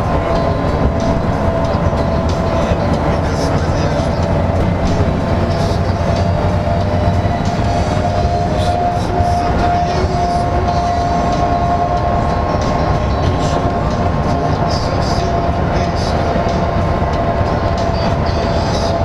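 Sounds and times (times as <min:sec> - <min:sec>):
bus engine and tyre rumble: 0:00.0 - 0:19.0
high whine: 0:00.0 - 0:19.0.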